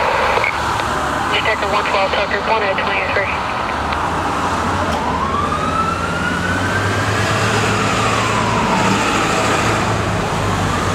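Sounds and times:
fire siren wailing: 4.5s - 10.9s.

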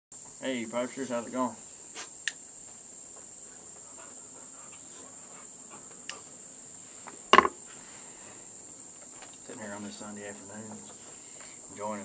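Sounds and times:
insects chirring: 0.2s - 12.0s
short knock: 7.3s - 7.6s.

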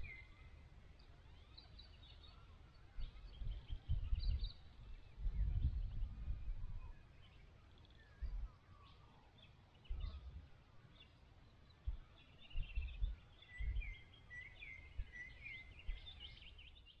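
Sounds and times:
birds calling and trilling: 0.0s - 17.0s
wind buffeting microphone: 2.9s - 7.1s, 8.1s - 8.5s, 9.8s - 10.5s, 11.8s - 14.0s.

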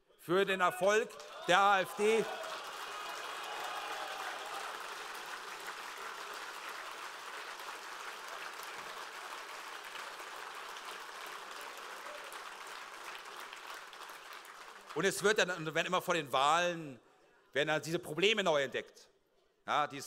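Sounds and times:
audience applauding: 1.0s - 15.6s.

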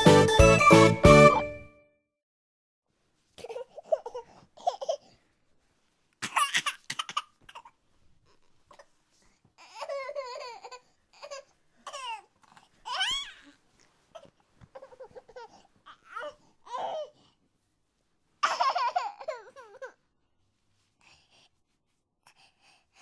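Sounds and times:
baby babbling and giggling: 3.4s - 5.0s, 9.6s - 17.2s, 18.4s - 20.0s.

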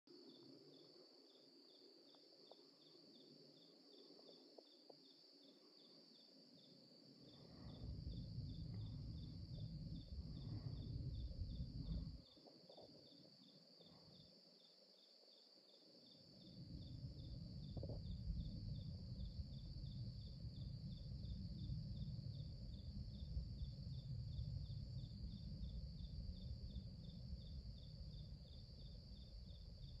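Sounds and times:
insect chorus chirping: 0.1s - 30.0s
low rumble: 7.5s - 12.2s, 16.6s - 28.4s.

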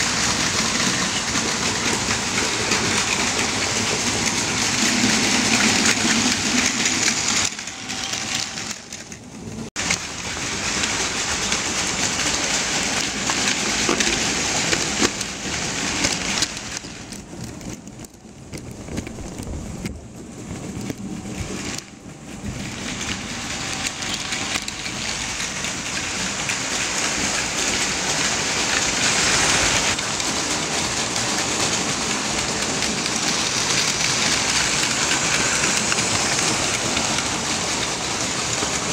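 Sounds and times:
toy train motors whirring: 0.0s - 9.2s, 22.5s - 38.9s.

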